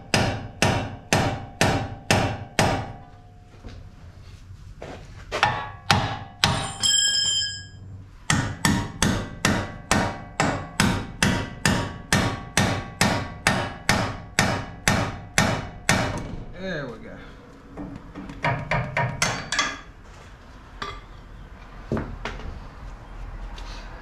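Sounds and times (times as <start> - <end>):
ringing clang: 6.4 - 7.8.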